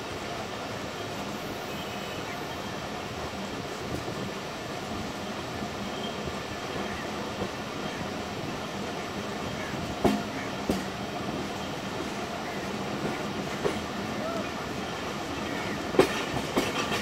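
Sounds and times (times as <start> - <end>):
passenger train running on track: 0.0 - 17.0
sharp track clacks: 10.0 - 11.0, 15.6 - 17.0.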